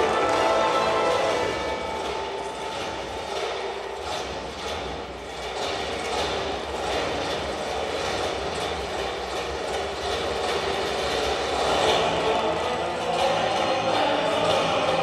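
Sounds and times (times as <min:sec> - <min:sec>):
music over loudspeakers: 0:00.0 - 0:04.2, 0:11.6 - 0:15.0.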